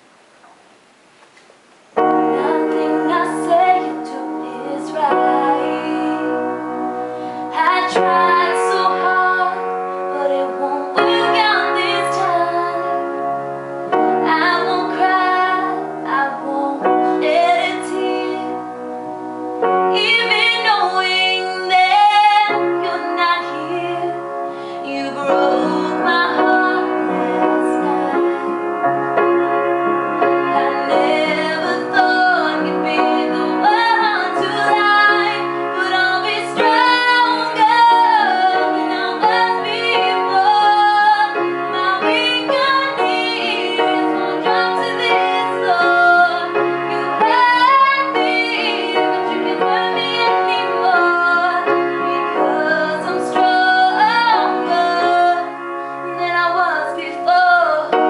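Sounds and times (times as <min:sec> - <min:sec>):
piano chords: 0:01.6 - 0:58.0
woman singing a ballad: 0:02.0 - 0:13.3, 0:13.9 - 0:19.0, 0:19.8 - 0:29.3, 0:30.2 - 0:58.0.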